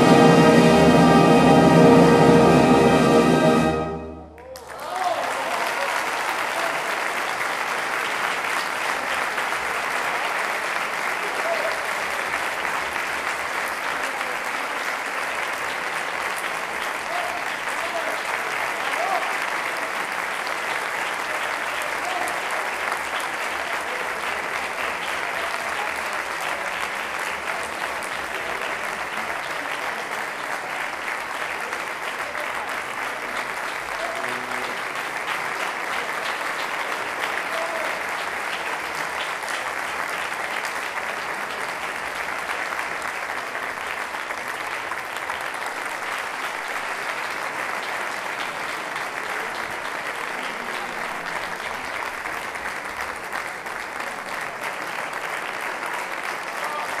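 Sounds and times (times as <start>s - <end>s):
crowd applause: 0.0s - 57.0s.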